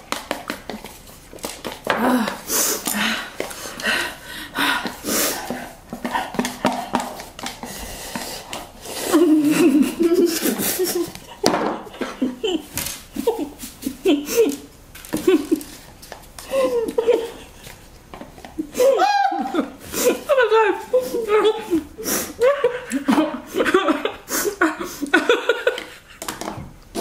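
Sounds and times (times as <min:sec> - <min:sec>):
women laughing: 0:09.0 - 0:15.8, 0:16.4 - 0:17.8, 0:18.6 - 0:26.2.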